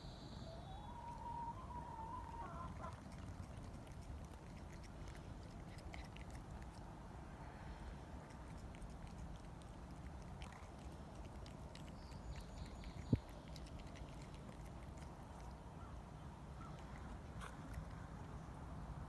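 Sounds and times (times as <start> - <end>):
low steady rumble: 0.0 - 19.0
cat chewing and licking: 1.8 - 19.0.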